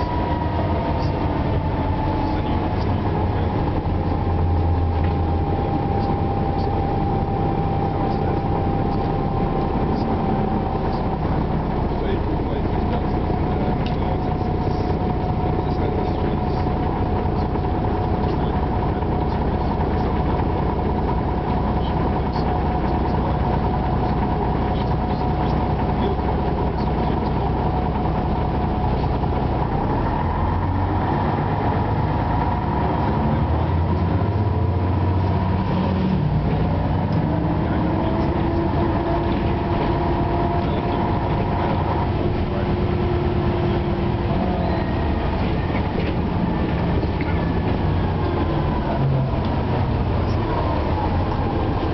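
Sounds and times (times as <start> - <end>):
bus diesel engine: 0.0 - 51.9.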